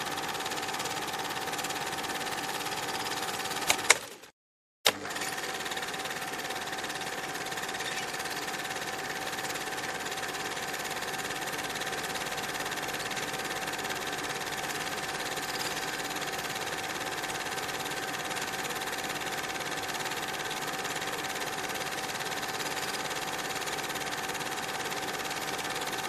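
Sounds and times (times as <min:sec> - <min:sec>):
film projector clatter and whirr: 0:00.0 - 0:04.3, 0:04.9 - 0:26.0
sharp click: 0:03.6 - 0:04.2.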